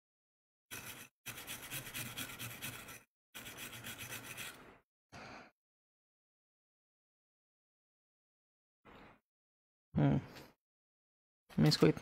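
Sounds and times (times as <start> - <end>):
scrubbing on circuit board: 0.7 - 4.7.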